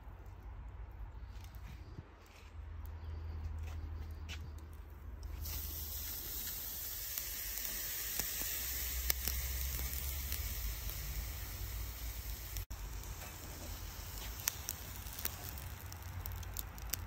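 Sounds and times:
steak sizzling on a grill: 5.4 - 17.0.

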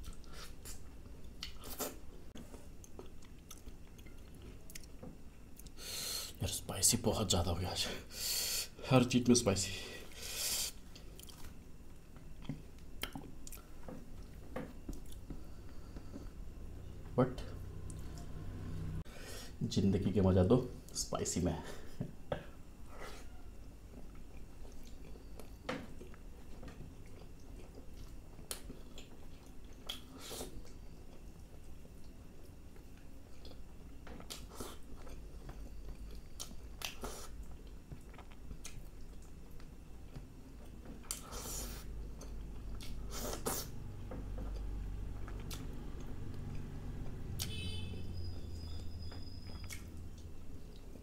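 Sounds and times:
man chewing food: 0.0 - 6.4, 10.0 - 16.6, 22.4 - 47.6, 48.6 - 51.0.

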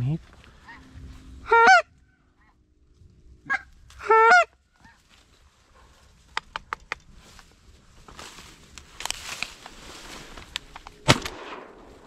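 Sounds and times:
goose call honking: 0.6 - 2.0, 3.4 - 5.0
sharp clicks: 6.3 - 7.1.

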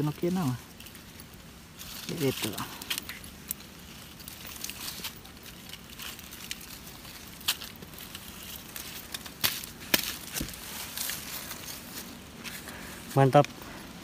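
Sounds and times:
dry leaves crackling and rustling: 0.0 - 14.0.

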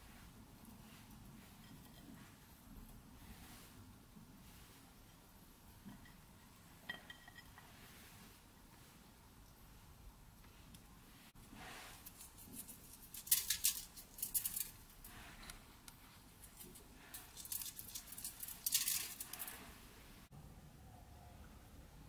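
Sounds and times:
seasoning pattering onto foil: 12.0 - 15.0, 16.4 - 19.6.

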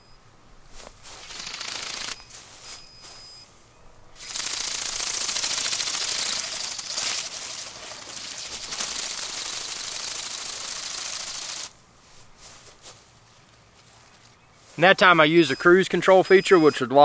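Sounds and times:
flapping-wing drone buzzing: 0.8 - 3.2, 4.2 - 11.8.

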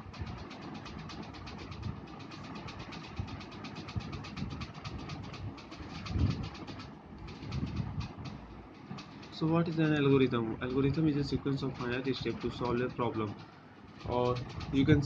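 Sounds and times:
engine idling with ticking: 0.0 - 15.0.

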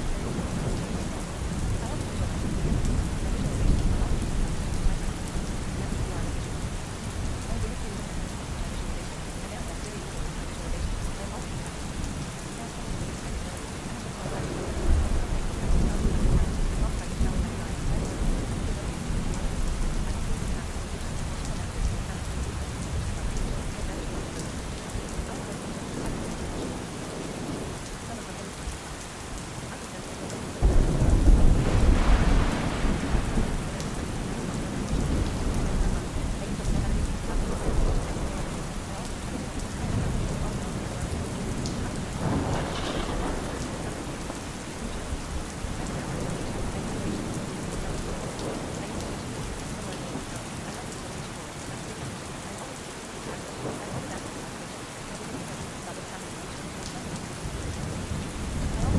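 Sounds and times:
steady rain: 0.0 - 58.9
rolling thunder: 30.6 - 49.2.

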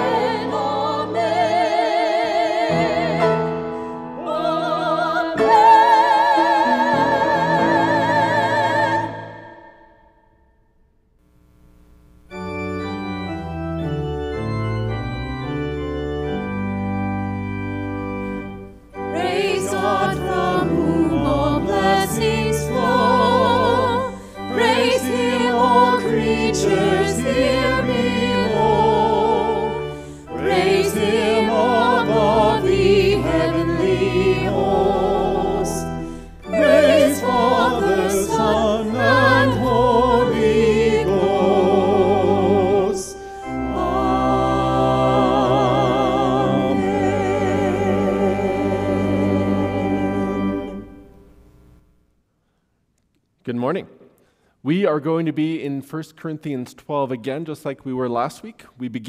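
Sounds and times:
small choir singing: 0.0 - 3.6, 4.2 - 10.1, 19.0 - 51.1
pipe organ chords: 11.3 - 51.8.

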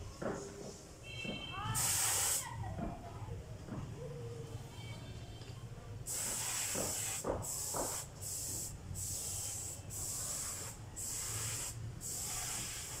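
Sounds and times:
high hiss bursts: 1.6 - 2.6, 6.1 - 13.0.

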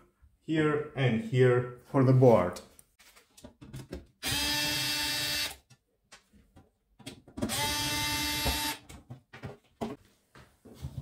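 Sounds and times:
cordless electric screwdriver running: 4.2 - 5.6, 7.5 - 8.8.

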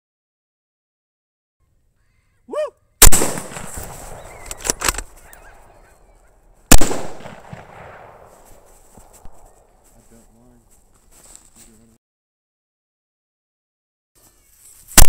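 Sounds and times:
rifle shots with rolling echo: 3.0 - 5.9, 6.7 - 9.8
sharp clicks: 4.4 - 5.4.

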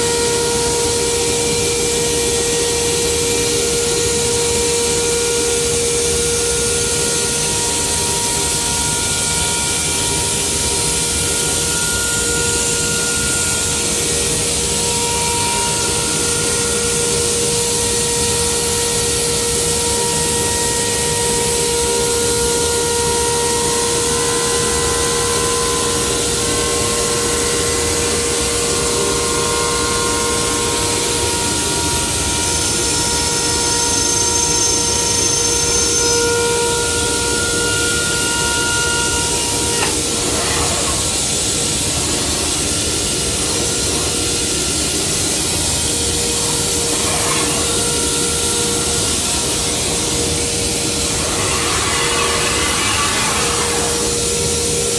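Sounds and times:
power cutting tool whining: 25.6 - 54.9.

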